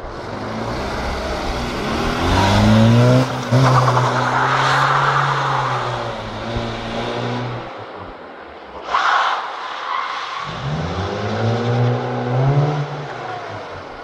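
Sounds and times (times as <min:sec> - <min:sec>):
car engine revving past: 0:00.4 - 0:07.7.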